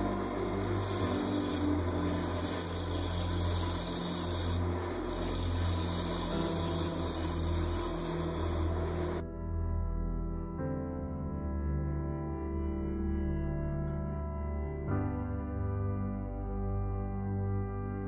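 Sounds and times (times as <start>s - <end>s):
wood lathe humming: 0.0s - 9.2s
gouge cutting wood: 0.2s - 9.2s.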